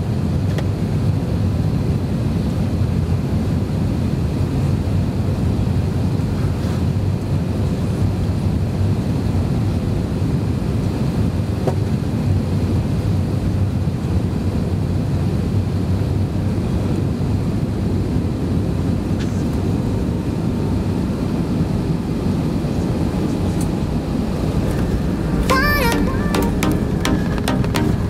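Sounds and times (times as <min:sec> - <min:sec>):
jet engine rumble in cabin: 0:00.0 - 0:28.0.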